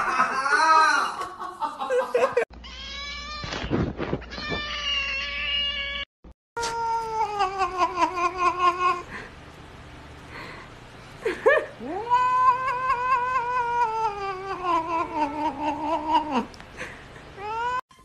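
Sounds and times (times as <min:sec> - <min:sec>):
cat yowling: 0:11.9 - 0:16.4.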